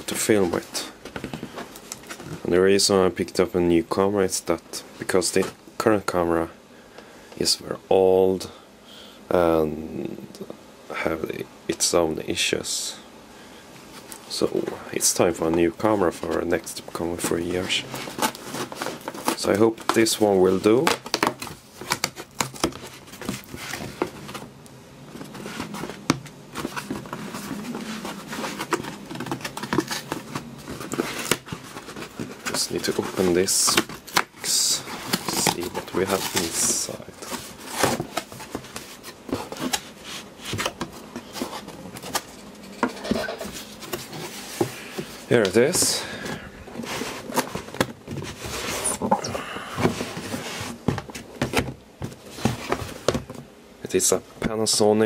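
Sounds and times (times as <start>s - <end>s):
cardboard scraping rustles: 0.0s - 3.2s, 13.8s - 53.5s.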